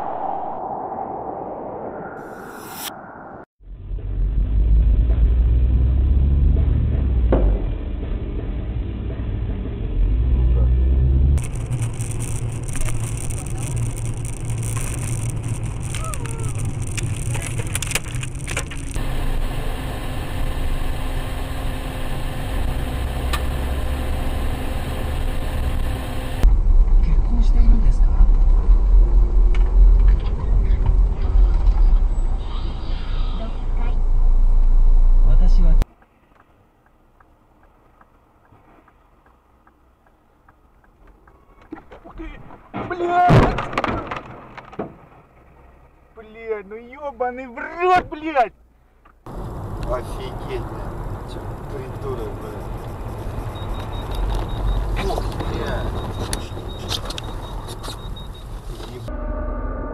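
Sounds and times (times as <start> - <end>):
car road and engine noise: 0.0 - 42.7, 44.3 - 59.9
sharp clicks and knocks: 11.4 - 19.0
turn signal ticking: 35.8 - 41.4, 52.6 - 59.0.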